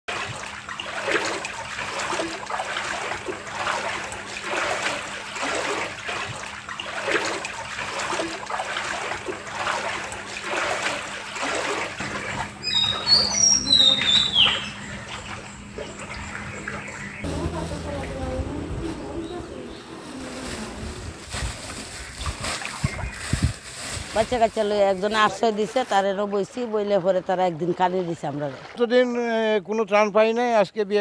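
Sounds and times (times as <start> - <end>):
people wading through water: 0.1 - 29.7
bird chirping: 12.6 - 18.0.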